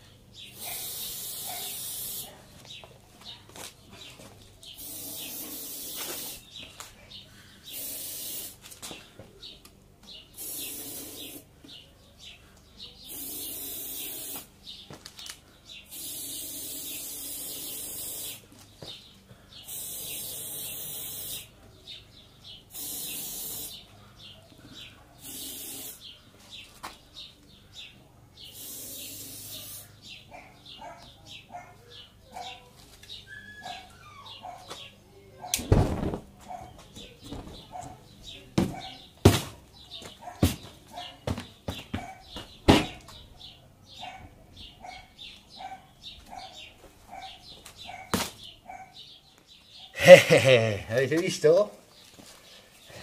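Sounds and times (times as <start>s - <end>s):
aerosol can spraying: 0.6s - 2.3s, 4.8s - 6.5s, 7.7s - 8.6s, 10.4s - 11.4s, 13.1s - 14.5s, 15.9s - 18.5s, 19.7s - 21.5s, 22.7s - 23.8s, 25.2s - 26.0s, 28.5s - 29.9s.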